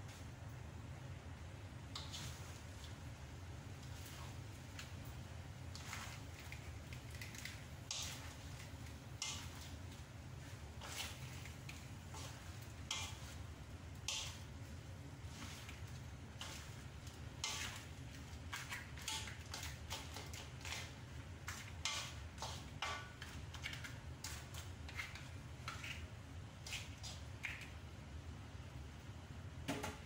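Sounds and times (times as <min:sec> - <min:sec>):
spatula scraping a wok: 0:02.0 - 0:03.0, 0:03.8 - 0:04.6, 0:05.7 - 0:27.2.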